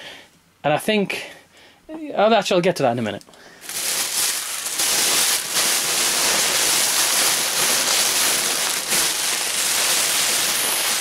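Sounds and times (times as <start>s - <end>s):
plastic packing crinkling: 3.6s - 11.0s.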